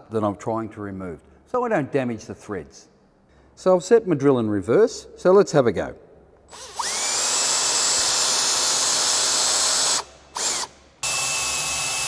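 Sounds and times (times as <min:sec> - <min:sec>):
cordless drill motor whine: 0:06.5 - 0:12.0.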